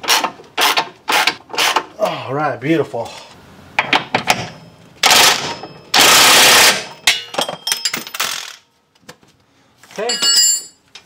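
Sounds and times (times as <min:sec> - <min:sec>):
light metallic clinks: 0:10.0 - 0:10.8.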